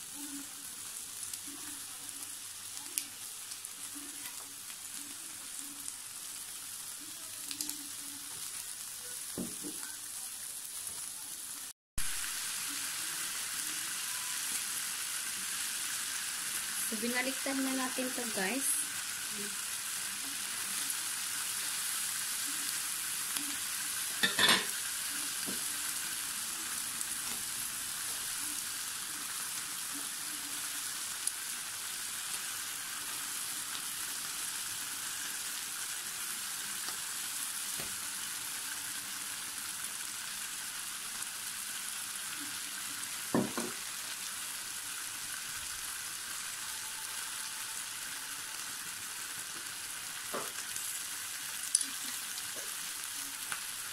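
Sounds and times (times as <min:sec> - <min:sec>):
ribs sizzling on a grill: 0:00.0 - 0:53.9.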